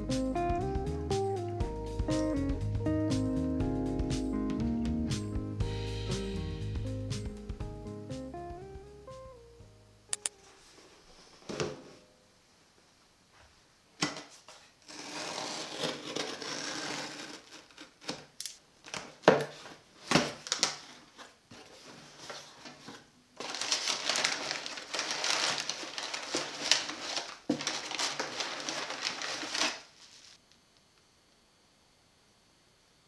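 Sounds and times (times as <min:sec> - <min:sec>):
packing paper rustling: 0:14.9 - 0:30.4.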